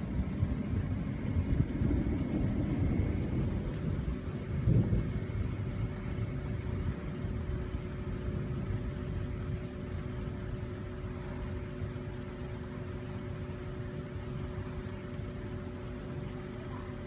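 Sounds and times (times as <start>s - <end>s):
distant thunder rumble: 0.0s - 11.6s
faint steady hum: 0.0s - 17.0s.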